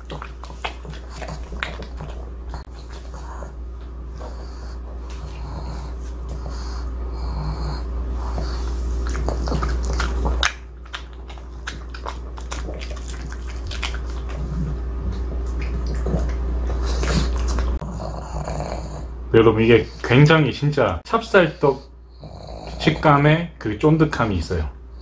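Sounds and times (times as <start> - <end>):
dog chewing and smacking: 0.0 - 6.8, 7.7 - 18.3
steady low hum: 0.0 - 25.0
dog snuffling breaths: 0.2 - 10.4, 15.9 - 19.1, 21.4 - 23.2.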